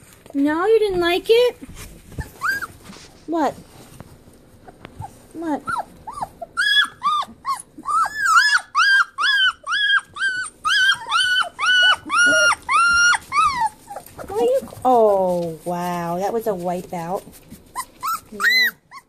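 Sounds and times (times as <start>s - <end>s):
puppy whining: 2.0s - 3.2s, 4.6s - 15.6s, 17.2s - 19.0s.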